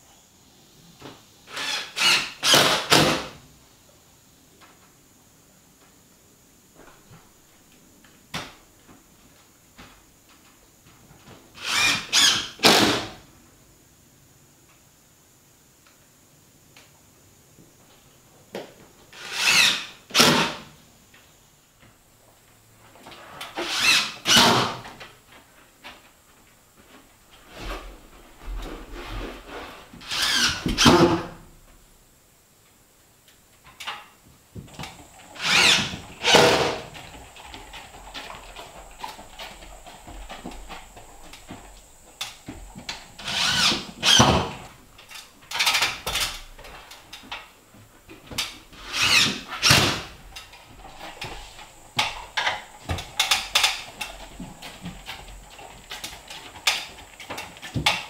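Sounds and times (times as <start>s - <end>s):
cordless drill driving screws: 1.5s - 3.2s, 11.6s - 12.9s, 19.2s - 20.6s, 23.6s - 24.7s, 30.0s - 30.9s, 35.4s - 36.8s, 43.2s - 44.5s, 48.8s - 50.0s.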